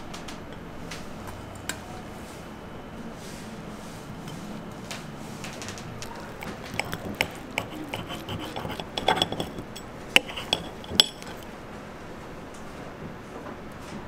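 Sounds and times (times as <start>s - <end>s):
knife and fork scraping plate: 6.0s - 11.5s
metal clinking on ceramic plate: 6.2s - 11.4s.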